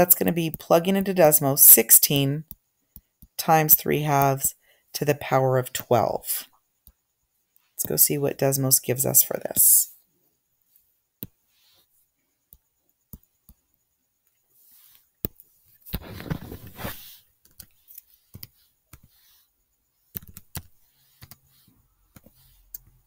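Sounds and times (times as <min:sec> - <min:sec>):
mouse and keyboard clicks: 0:20.1 - 0:21.5.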